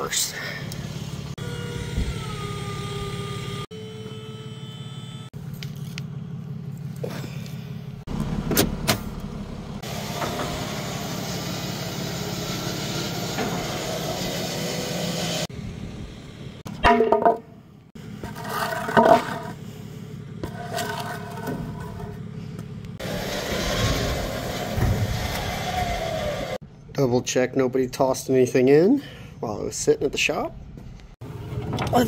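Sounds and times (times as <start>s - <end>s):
truck engine idling: 5.4s - 13.0s
sharp metal knocks: 16.7s - 17.5s.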